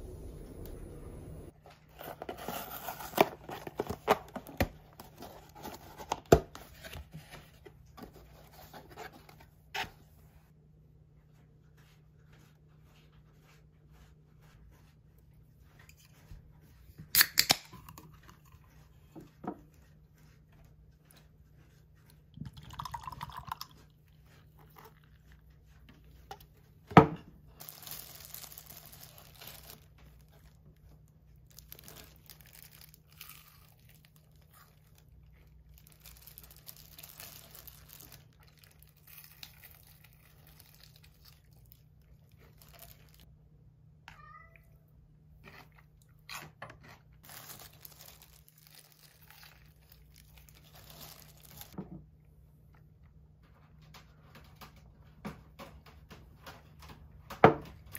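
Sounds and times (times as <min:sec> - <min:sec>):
drink can cracked open: 0:17.2 - 0:17.8
crunchy chewing: 0:31.5 - 0:43.2
cat meowing: 0:44.1 - 0:44.8.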